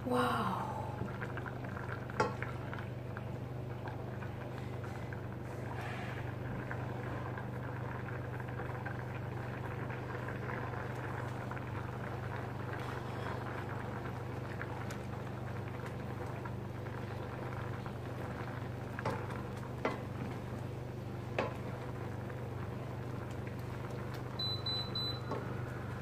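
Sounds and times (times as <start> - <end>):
cream simmering in saucepan: 0.0 - 26.0
steady low hum: 0.0 - 26.0
cooktop control beeps: 24.2 - 26.0.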